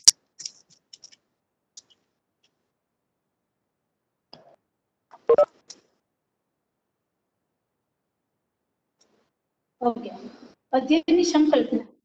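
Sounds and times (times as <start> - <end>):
quick electronic beeps: 5.2 - 5.5.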